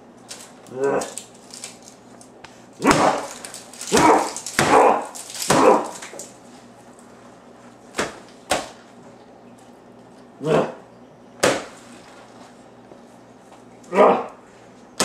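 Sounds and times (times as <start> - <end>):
man grunting and growling: 13.9 - 14.4.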